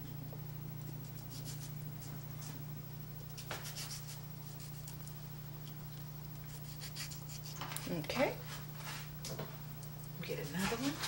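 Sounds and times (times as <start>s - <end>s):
steady low hum: 0.0s - 11.0s
knife sawing through tomato: 1.0s - 1.8s, 3.6s - 5.0s, 6.5s - 7.7s.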